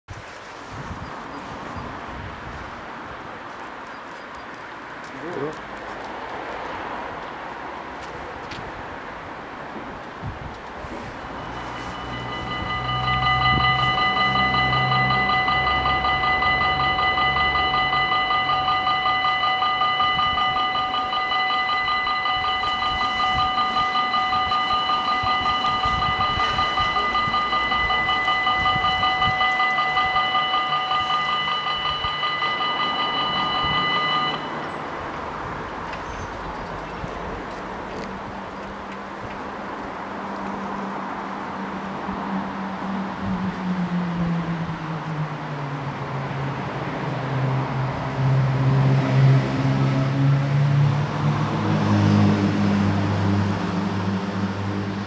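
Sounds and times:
level crossing bells ringing: 10.8s - 37.1s.

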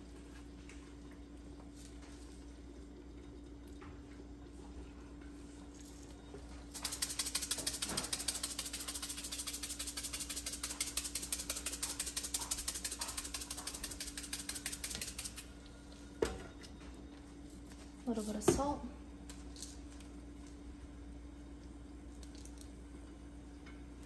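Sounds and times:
salt grinder crunching clicks: 6.8s - 15.4s.

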